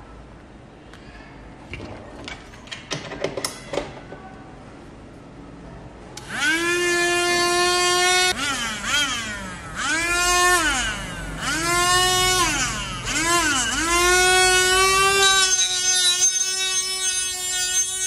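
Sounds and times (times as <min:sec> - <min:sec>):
small motor whining: 0:06.2 - 0:18.0.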